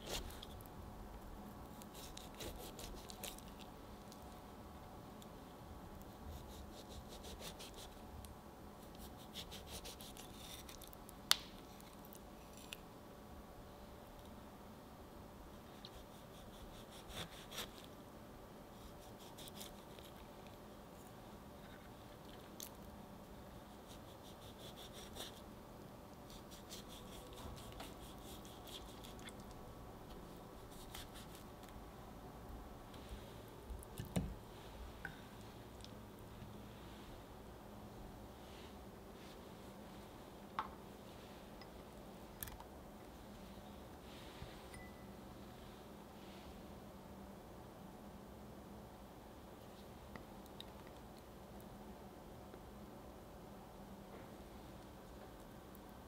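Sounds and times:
knife cutting wet fruit: 1.8 - 3.6, 26.3 - 29.5, 30.6 - 31.5.

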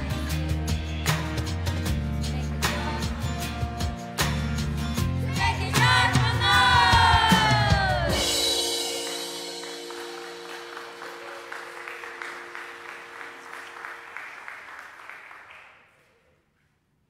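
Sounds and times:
music final chord ringing: 8.1 - 14.6
audience applause: 9.0 - 16.1.

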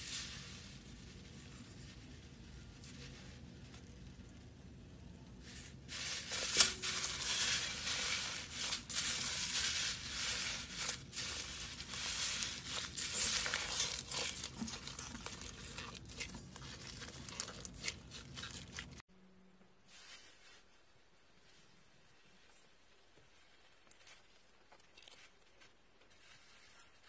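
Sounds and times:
foam beads crackling in slime: 5.4 - 19.0.

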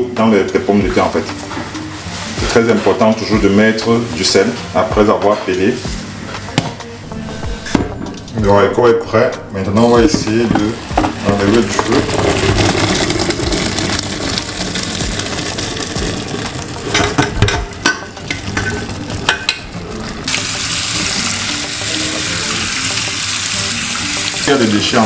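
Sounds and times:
pot knocking against colander: 10.1 - 13.8, 15.0 - 19.6
tap water running: 10.1 - 25.0
liquid splashing into colander: 11.3 - 17.5.

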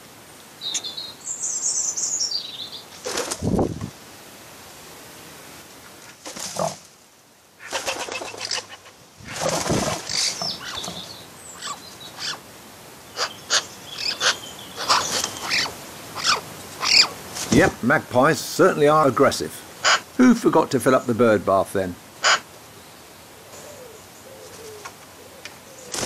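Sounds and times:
pigeon wings flapping: 3.0 - 3.9, 6.0 - 6.8, 7.6 - 11.0, 17.3 - 17.8
high bird chirps: 13.1 - 17.1.

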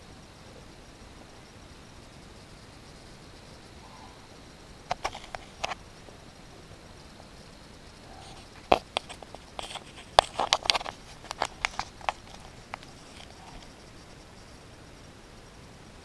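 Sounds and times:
sharp irregular clicks and taps: 4.9 - 5.8, 8.2 - 13.7.

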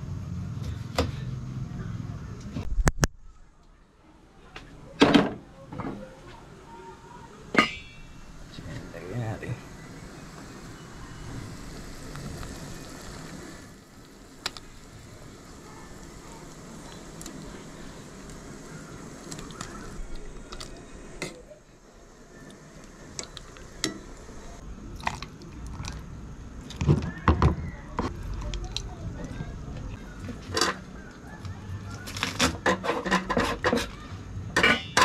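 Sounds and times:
gas burner hissing: 4.8 - 35.0
soup simmering: 8.3 - 26.8
kitchen clicks and knocks: 32.3 - 34.0, 34.6 - 35.0.

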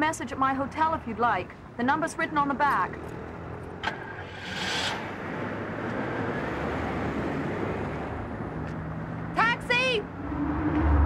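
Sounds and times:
street traffic: 0.0 - 11.0
car engine rumble: 10.0 - 11.0.

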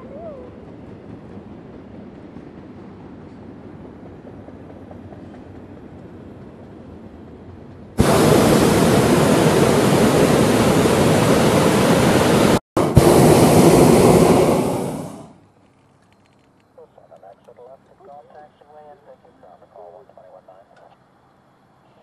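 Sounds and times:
propane burner blast: 8.0 - 15.4.

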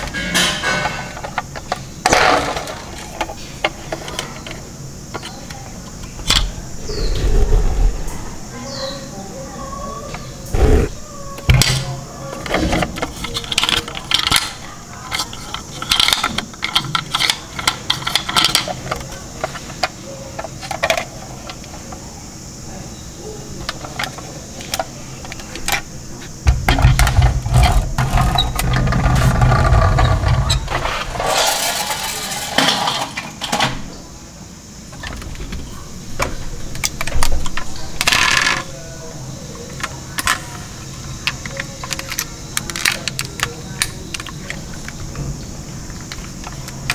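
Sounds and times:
plastic toy truck clicking and rattling: 12.4 - 22.0, 26.7 - 33.8, 36.8 - 38.7, 41.2 - 45.1
toy truck rolling on table: 27.2 - 33.2.

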